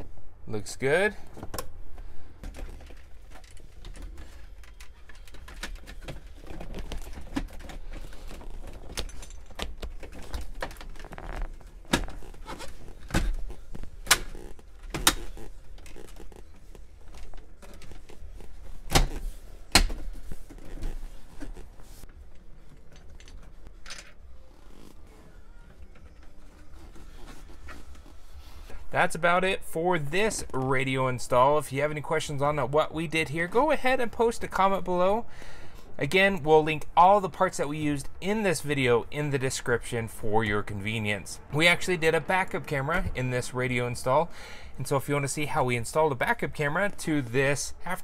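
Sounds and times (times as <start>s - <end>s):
plastic trim rustling: 2.4s - 28.3s.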